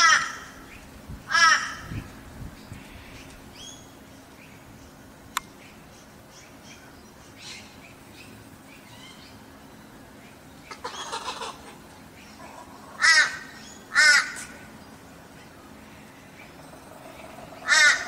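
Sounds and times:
kookaburra calls: 0.0s - 2.0s, 10.6s - 14.7s, 16.4s - 18.0s.

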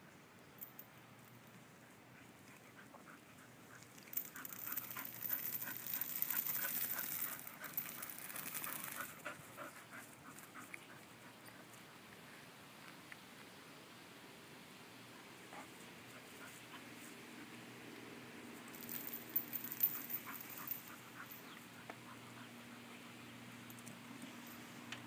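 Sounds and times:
dog panting: 1.7s - 12.4s, 19.6s - 23.3s.

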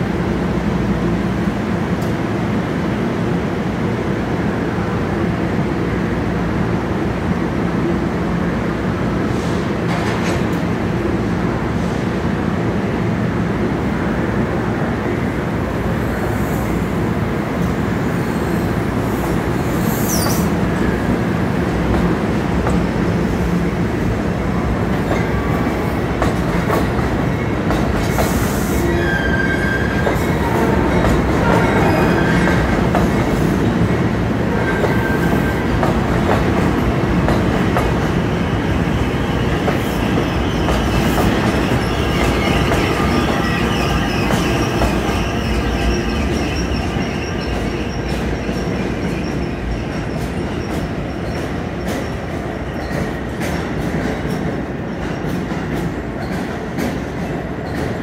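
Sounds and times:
high wheel squeals: 40.0s - 51.6s.

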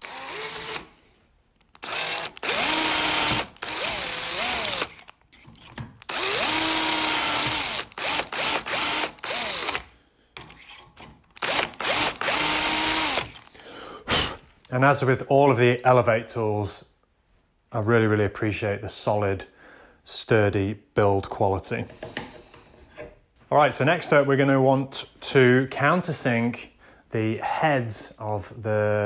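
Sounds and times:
cordless drill boring into wood: 0.0s - 1.0s, 1.7s - 9.9s, 11.4s - 13.5s.

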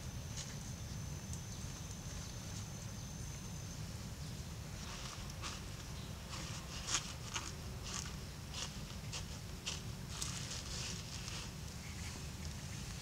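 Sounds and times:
leaf rustling and crinkling: 4.7s - 13.0s.

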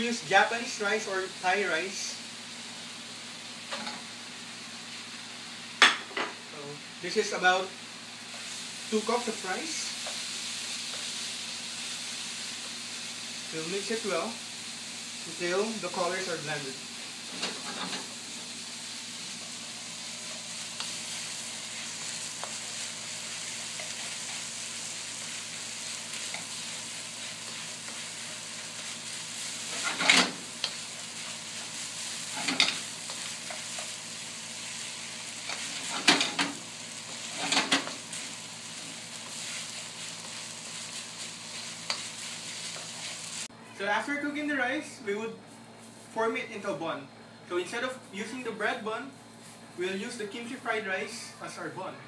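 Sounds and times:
rice sizzling in a wok: 0.0s - 46.8s, 47.5s - 51.7s
spatula scraping and knocking wok: 17.2s - 18.2s, 19.2s - 43.5s.

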